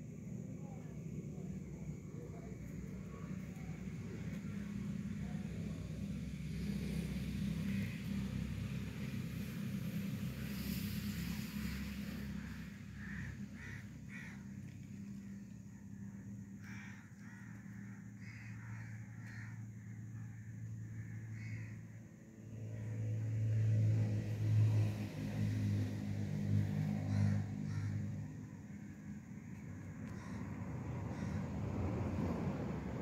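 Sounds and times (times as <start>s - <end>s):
steady low hum: 0.0s - 33.0s
crows cawing: 12.4s - 14.8s, 16.6s - 20.3s, 20.9s - 21.8s, 27.0s - 28.3s, 30.0s - 30.5s, 31.1s - 31.6s.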